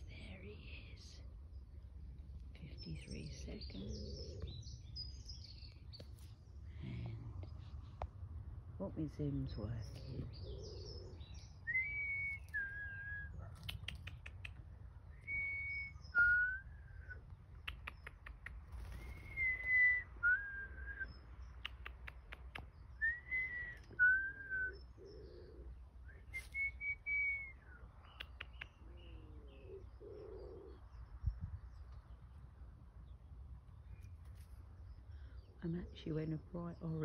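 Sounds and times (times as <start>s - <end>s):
soft clicks: 13.6s - 14.6s, 21.6s - 22.7s.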